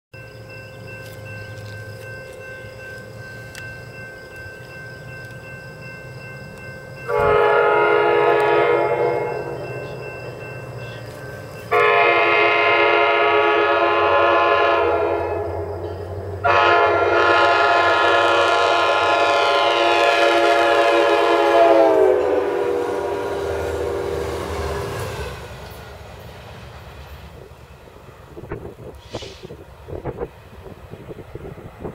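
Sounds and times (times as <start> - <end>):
low rumble of train: 0.1 - 31.9
train horn blasts: 7.0 - 10.1, 10.8 - 25.4.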